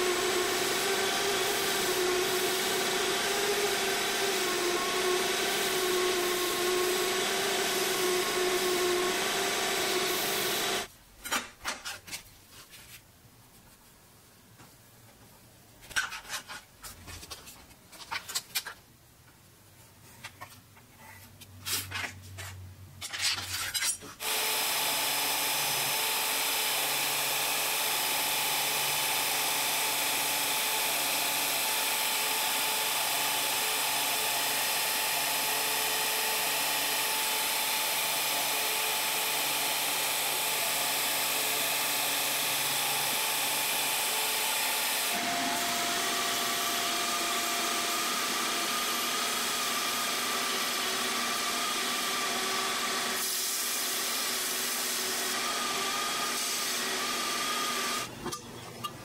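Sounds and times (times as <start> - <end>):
bandsaw cutting: 0.0 - 10.9, 23.2 - 58.1.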